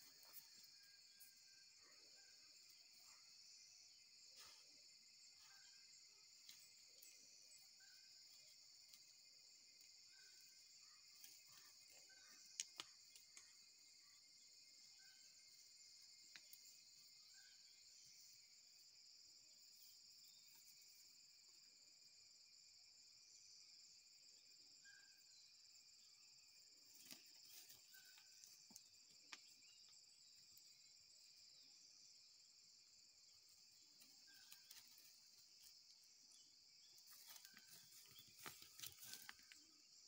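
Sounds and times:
insects buzzing: 0.0s - 40.0s
paws rustling on pine needles: 37.1s - 39.5s.

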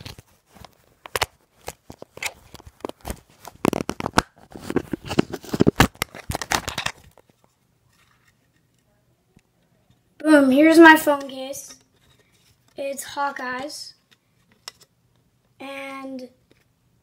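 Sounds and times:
phone case clicks and scrapes: 0.0s - 7.3s.

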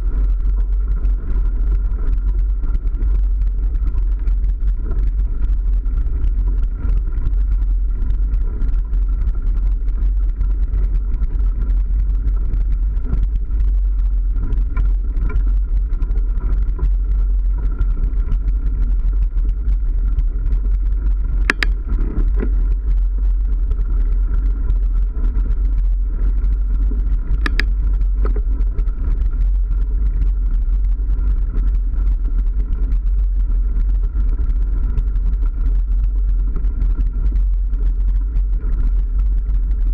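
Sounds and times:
bike tyres rolling on dirt: 0.0s - 39.9s
sharp clicks: 21.4s - 21.8s, 27.4s - 28.4s.

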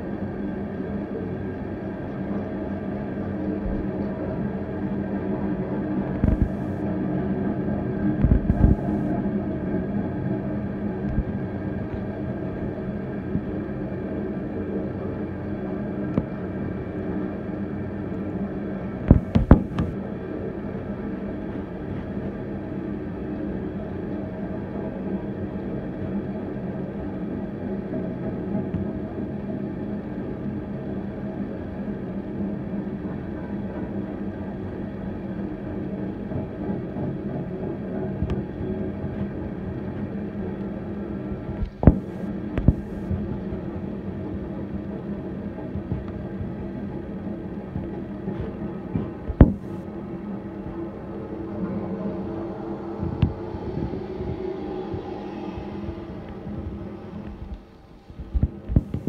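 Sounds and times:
sharp knocks: 19.1s - 20.0s, 41.8s - 42.9s, 49.3s - 49.8s
freight train wheels rumbling: 38.9s - 59.0s.

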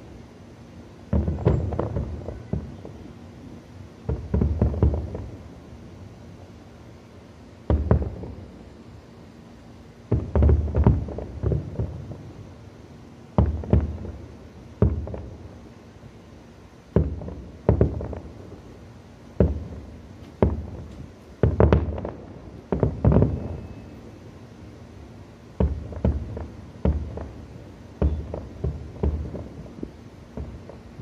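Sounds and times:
distant firework shells bursting: 1.1s - 6.2s, 7.6s - 8.7s, 10.1s - 12.7s, 13.3s - 15.8s, 16.9s - 24.5s, 25.4s - 31.0s.

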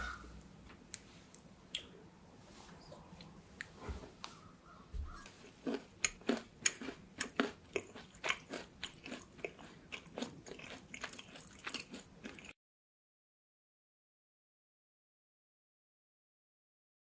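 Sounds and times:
cookie crunching while chewed: 5.2s - 12.6s.

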